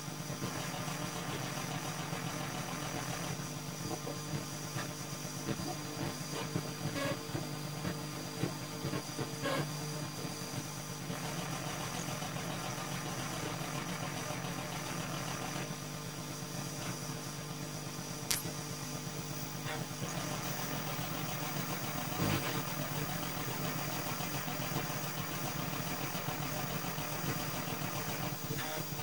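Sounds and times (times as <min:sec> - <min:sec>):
sharp click: 0:18.3 - 0:18.6.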